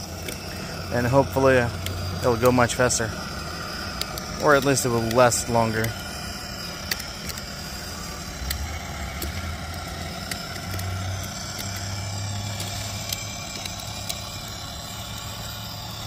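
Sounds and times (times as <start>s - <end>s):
electric motor and gearbox hum: 0.0s - 16.0s
plastic wheels rumbling on pavement: 0.0s - 16.0s
small clicks: 0.0s - 16.0s.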